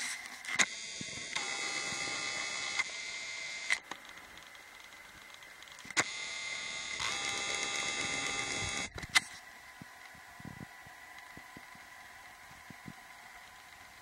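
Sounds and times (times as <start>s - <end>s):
sharp clicks: 0.5s - 9.4s
camera zoom motor whining: 0.5s - 14.0s.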